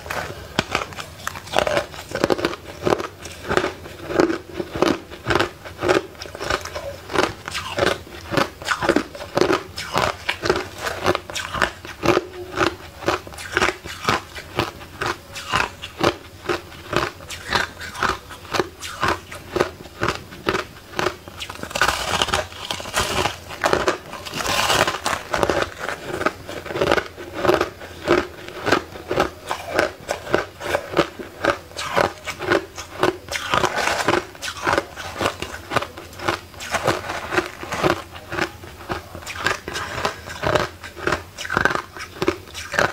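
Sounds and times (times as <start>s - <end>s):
crushed ice crunching: 21.5s - 30.4s.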